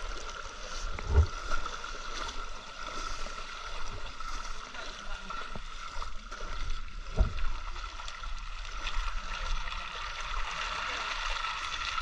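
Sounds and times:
river water running over stones: 0.0s - 12.0s
dull thump: 1.0s - 1.4s.

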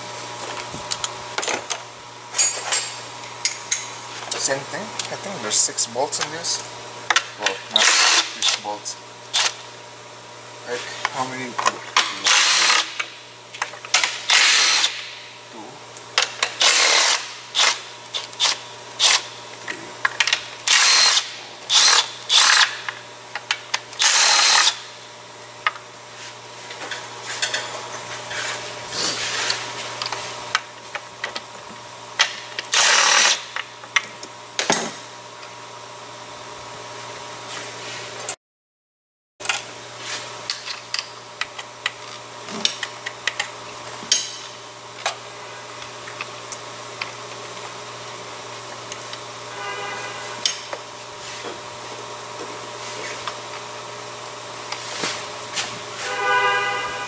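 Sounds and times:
ratchet wrench ratcheting: 16.5s - 19.2s, 20.6s - 22.8s.

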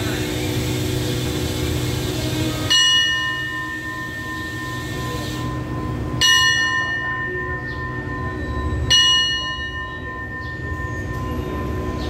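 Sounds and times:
diesel locomotive idling hum: 0.0s - 12.0s
station bell ringing: 2.6s - 12.0s.

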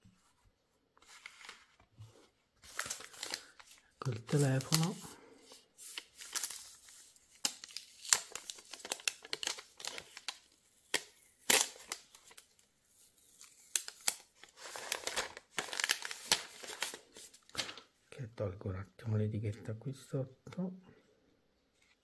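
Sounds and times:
plastic wrap crinkling: 2.6s - 5.2s, 5.8s - 12.5s, 13.2s - 17.9s.

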